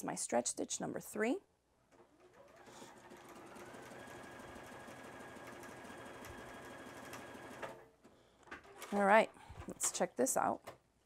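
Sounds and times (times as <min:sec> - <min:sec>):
sewing machine running: 0:02.1 - 0:07.8.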